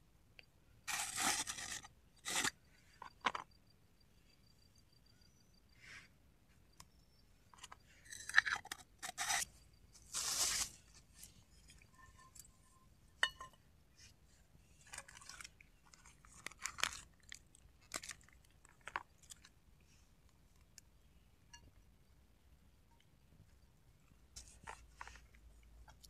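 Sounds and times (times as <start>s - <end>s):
cooking gear crunching and scraping: 0.9s - 2.5s, 14.8s - 19.5s
twig fire crackling: 10.0s - 11.3s.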